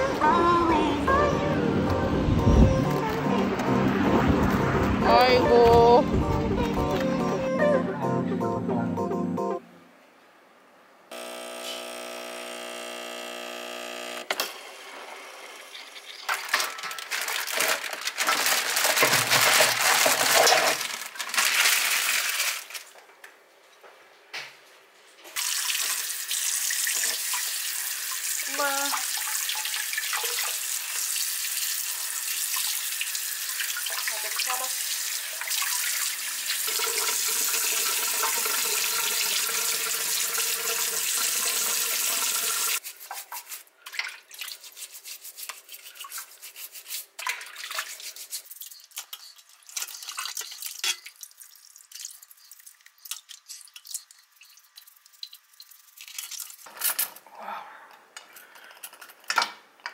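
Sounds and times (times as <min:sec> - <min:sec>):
espresso machine pulling a shot: 0:11.1 - 0:15.4
tap water running into steel bowl: 0:25.4 - 0:44.6.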